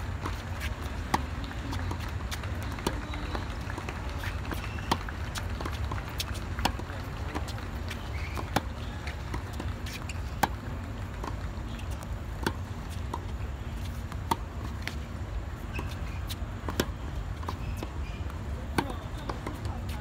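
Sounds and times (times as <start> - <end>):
tennis ball bouncing: 0.0 - 20.0
racket striking tennis ball: 15.7 - 17.9.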